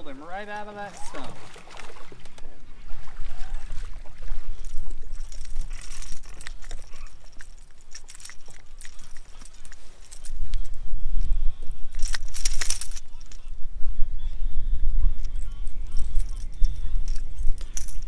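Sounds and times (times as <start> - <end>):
water splashing: 0.0 - 10.2
wind rumbling on microphone: 0.0 - 18.0
clicks and knocks of handling: 15.2 - 18.0.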